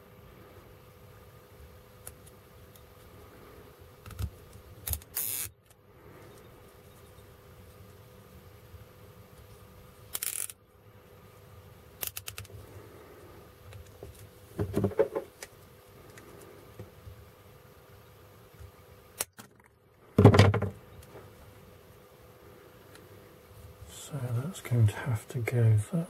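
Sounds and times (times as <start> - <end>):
cable tie ratchet zipping: 4.0 - 5.5, 10.1 - 10.6
hard plastic parts knocking: 14.6 - 15.3, 20.2 - 20.8.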